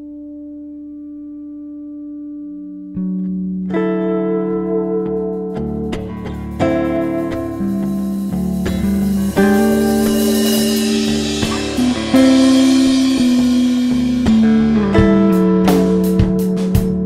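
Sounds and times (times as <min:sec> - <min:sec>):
held music chords: 0:02.9 - 0:17.0
drum hits: 0:06.0 - 0:17.0.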